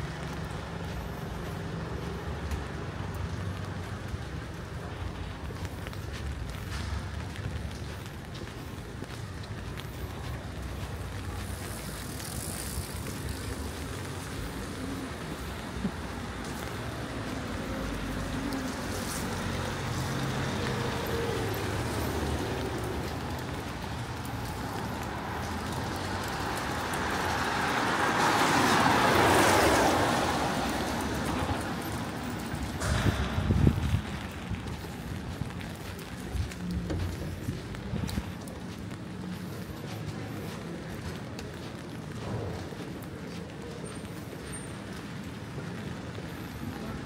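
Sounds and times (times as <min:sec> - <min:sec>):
car passing on wet road: 0:00.0 - 0:47.0
traffic rumble: 0:00.0 - 0:47.0.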